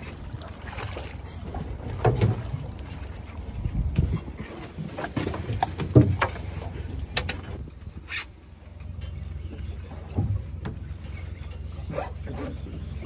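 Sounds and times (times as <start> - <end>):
boat motor humming: 0.0 - 13.0
knocks and clicks of gear: 4.8 - 7.6.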